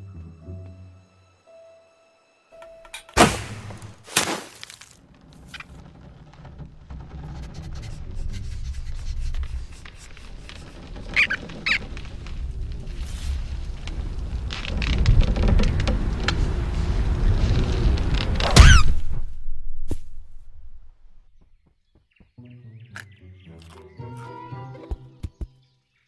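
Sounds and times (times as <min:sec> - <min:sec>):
low rumble: 0:05.0 - 0:21.4
short high squeaks: 0:07.4 - 0:12.0.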